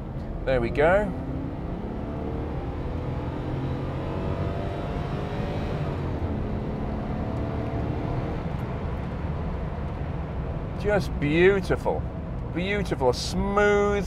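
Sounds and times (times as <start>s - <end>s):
car engine accelerating: 0.0s - 11.2s.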